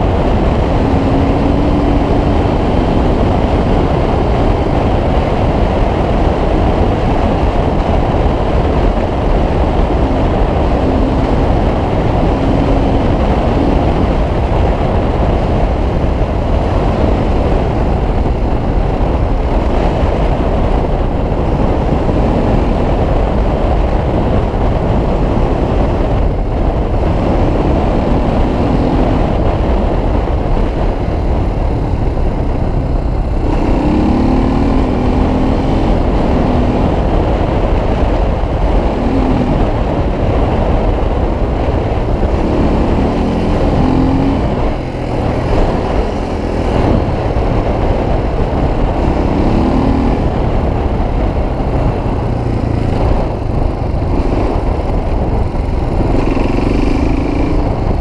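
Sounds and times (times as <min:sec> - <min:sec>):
dirt bike engine revving: 0:00.0 - 0:14.3, 0:32.7 - 0:38.0, 0:38.6 - 0:50.6, 0:53.9 - 0:58.0
wind noise: 0:00.0 - 0:58.0.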